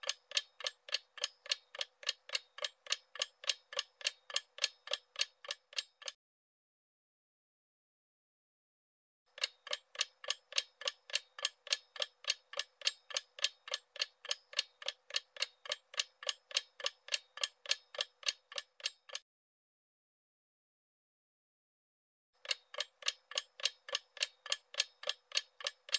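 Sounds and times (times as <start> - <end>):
fast clock ticking: 0.0 - 6.2, 9.3 - 19.2, 22.4 - 25.9.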